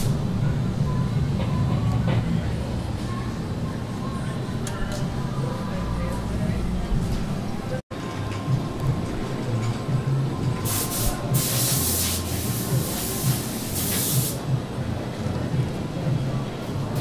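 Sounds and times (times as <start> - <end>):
workshop machinery drone: 0.0 - 17.0
compressed air hissing: 10.6 - 14.5.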